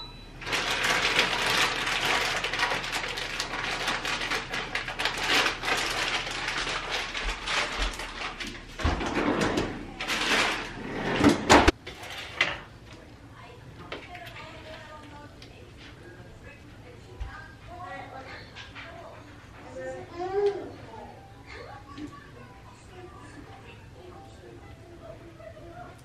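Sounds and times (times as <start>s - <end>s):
kitchen clattering: 0.4s - 12.8s.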